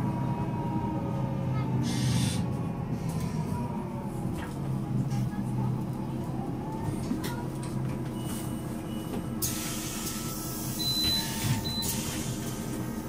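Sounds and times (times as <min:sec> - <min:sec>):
bus diesel engine idling: 0:00.0 - 0:13.0
compressed air hiss: 0:09.4 - 0:10.7.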